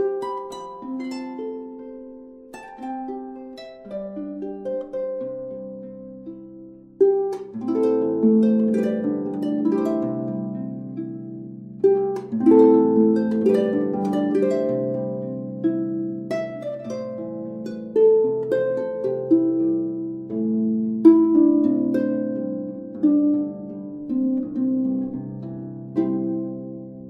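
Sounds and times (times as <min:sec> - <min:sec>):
plucked strings gentle melody: 0:00.0 - 0:27.0.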